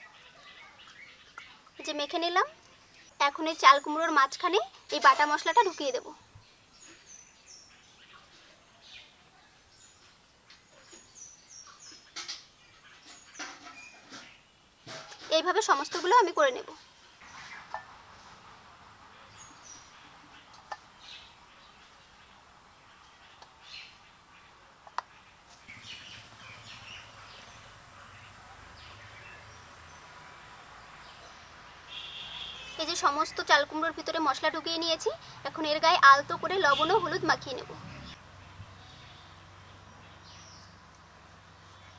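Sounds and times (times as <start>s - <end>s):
faint birds chirping: 0.0s - 41.9s
steady high hiss: 16.8s - 35.1s
small bird chirping: 24.9s - 33.6s.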